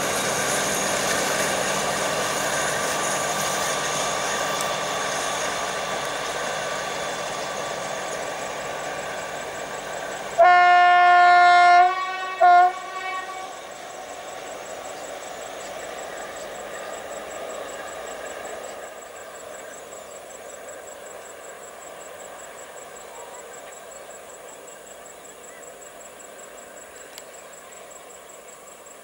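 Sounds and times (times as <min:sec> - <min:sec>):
diesel locomotive engine: 0:00.0 - 0:29.0
two-tone locomotive horn: 0:10.3 - 0:13.8.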